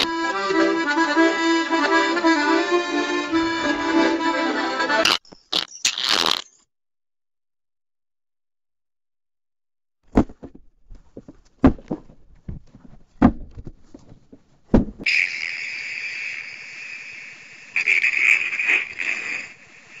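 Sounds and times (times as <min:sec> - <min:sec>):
sharp fart blasts: 0:00.0 - 0:00.3, 0:05.0 - 0:06.5
fart sputters: 0:05.0 - 0:06.6, 0:15.0 - 0:16.1, 0:17.8 - 0:19.6
high-pitched hissing fart: 0:05.0 - 0:06.6, 0:15.0 - 0:20.0.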